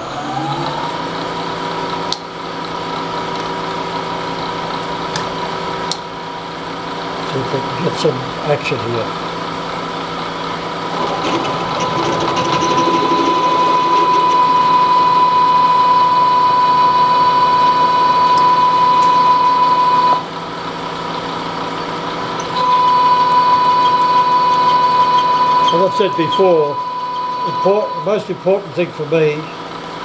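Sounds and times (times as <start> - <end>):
milling machine hum: 0.0 - 30.0
drill cutting steel whine: 7.5 - 29.7.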